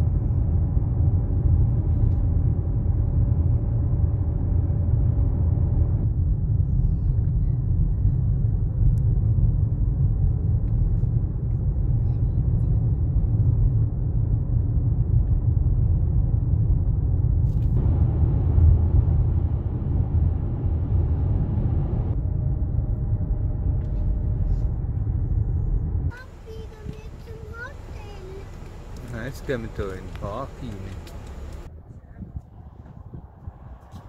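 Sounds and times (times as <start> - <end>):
car driving heard from inside: 10.5 - 31.7.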